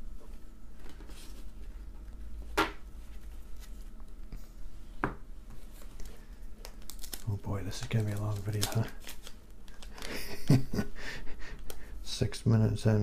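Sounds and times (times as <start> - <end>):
faint card rustling: 5.5 - 10.1.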